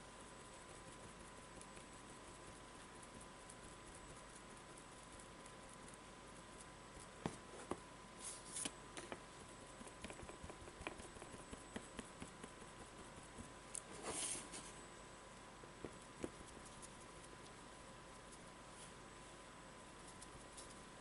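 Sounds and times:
sponge dauber tapping: 9.8 - 13.5.

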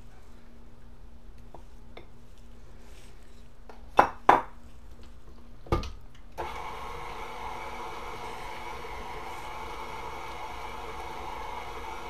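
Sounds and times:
stand mixer motor running: 6.4 - 12.0.

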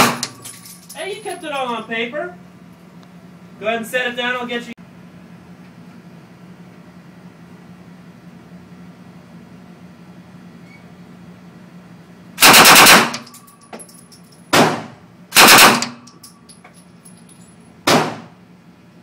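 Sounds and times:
rifle firing on full auto: 12.4 - 13.3, 14.6 - 16.0.

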